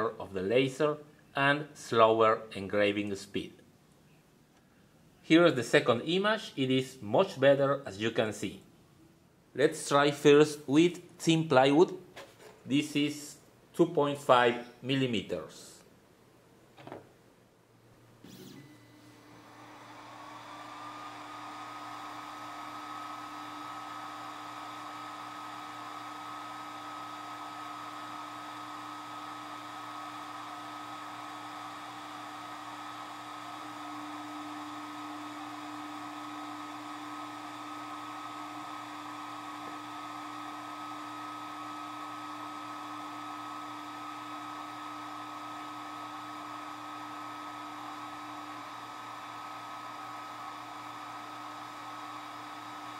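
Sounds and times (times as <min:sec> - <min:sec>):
fan whirring: 0:19.2 - 0:52.9.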